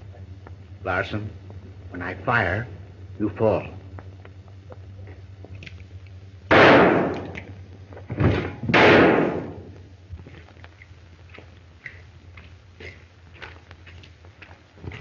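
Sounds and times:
revolver shots echoing: 0:06.5 - 0:07.4, 0:08.7 - 0:09.7.

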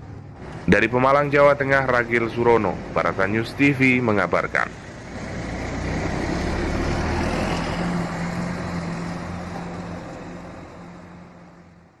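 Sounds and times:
bus driving past: 0:00.0 - 0:12.0.

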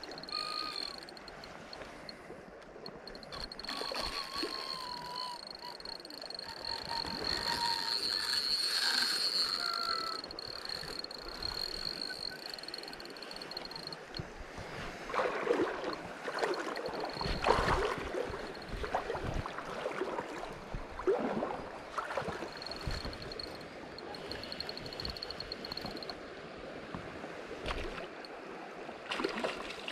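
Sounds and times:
high fishing reel whine: 0:00.0 - 0:02.2, 0:02.8 - 0:14.4, 0:15.8 - 0:19.2, 0:22.1 - 0:26.2
river water splashing: 0:00.0 - 0:29.9.

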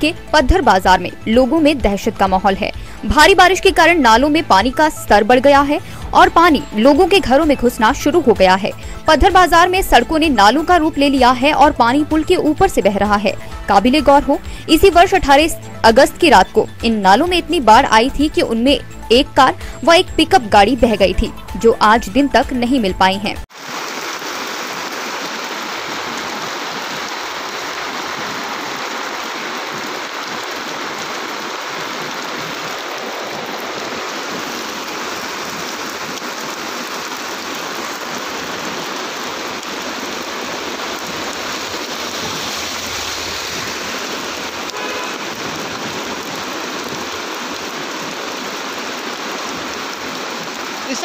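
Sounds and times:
heavy rain falling: 0:00.0 - 0:18.4, 0:23.4 - 0:51.0
floodwater rushing: 0:23.4 - 0:51.0.

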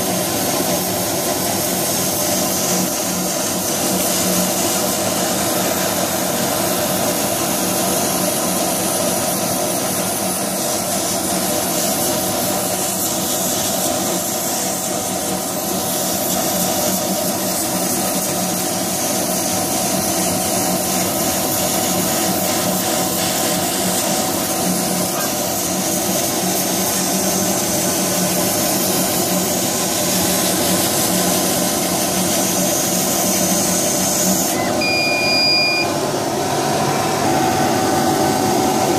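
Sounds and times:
laser cutter hum: 0:21.2 - 0:27.1, 0:32.0 - 0:38.9
rushing air: 0:35.9 - 0:38.9.

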